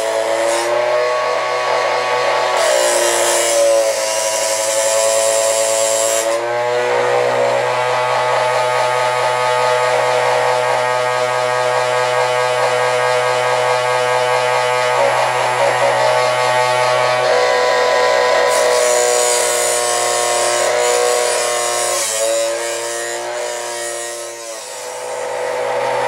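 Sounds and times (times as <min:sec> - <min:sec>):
grinding wheel hissing on chain: 0:00.0 - 0:06.4, 0:07.0 - 0:26.0
electric motor humming: 0:00.0 - 0:26.0.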